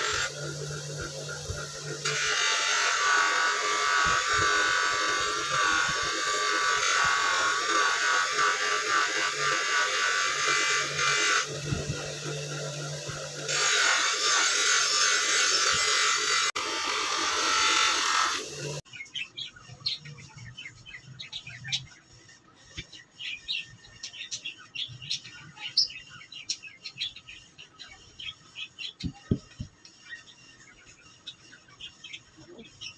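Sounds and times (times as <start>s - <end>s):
bench grinder motor hum: 0.0s - 18.8s
metal hissing on grinding wheel: 0.0s - 18.8s
faint birds chirping: 18.8s - 32.9s.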